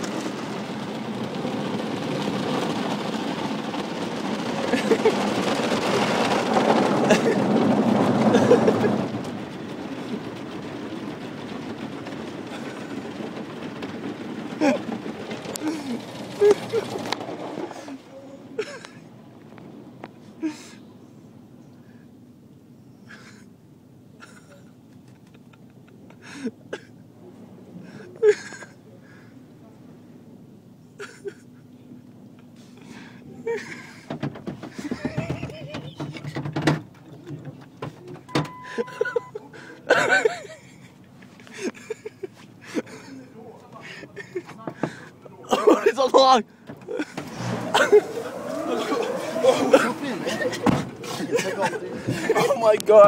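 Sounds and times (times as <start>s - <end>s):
car wash machinery droning: 0.0s - 53.0s
bumps and knocks inside truck cab: 33.8s - 38.6s, 46.6s - 48.1s, 49.8s - 51.1s
water spraying: 46.0s - 53.0s
brushes scrubbing window glass: 47.2s - 52.7s.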